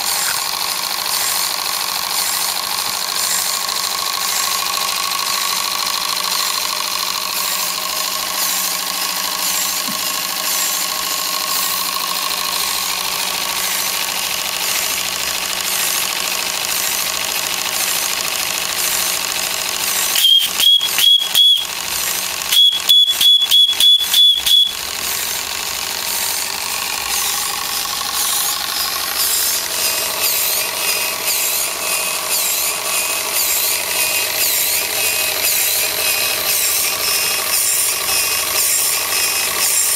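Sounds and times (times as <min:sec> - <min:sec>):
model steam engine ticking: 0:00.0 - 0:39.9
loud high beeps: 0:20.2 - 0:21.7, 0:22.5 - 0:24.8.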